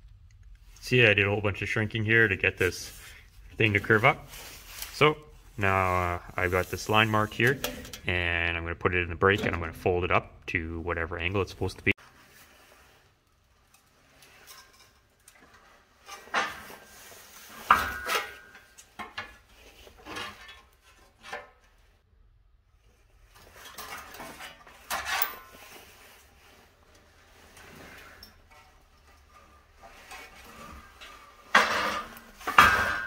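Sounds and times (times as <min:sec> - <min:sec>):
sheet metal clanking and rattling: 0:07.5 - 0:08.1, 0:27.6 - 0:33.0.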